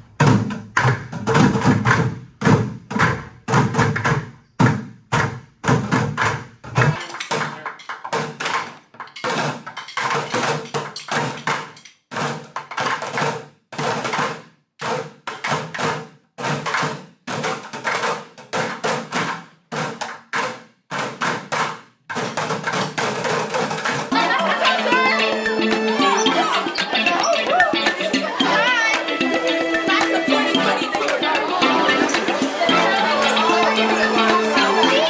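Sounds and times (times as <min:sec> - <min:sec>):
drumsticks hitting plastic buckets: 0:00.0 - 0:24.6.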